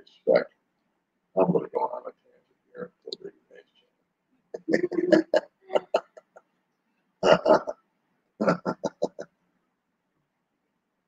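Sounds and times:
person laughing: 4.6s - 6.4s.

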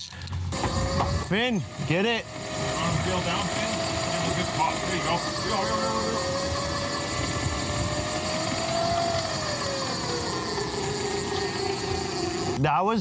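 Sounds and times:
wind: 0.0s - 13.0s
boat motor whining hum: 0.4s - 12.8s
water noise: 0.5s - 12.6s.

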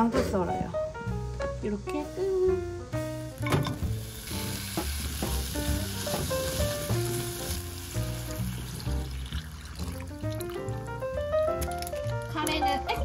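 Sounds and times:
onions sizzling in a pot: 3.3s - 10.8s
water pouring into pot: 4.0s - 12.6s.

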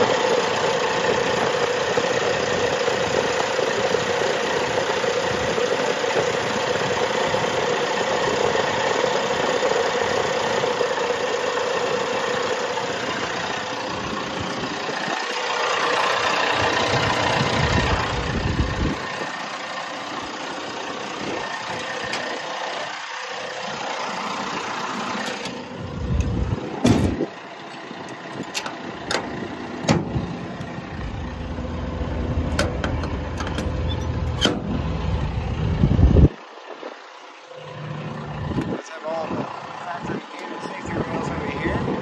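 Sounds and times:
diesel engine idling: 0.0s - 42.0s
metal panels and latches clicking: 32.5s - 34.7s.

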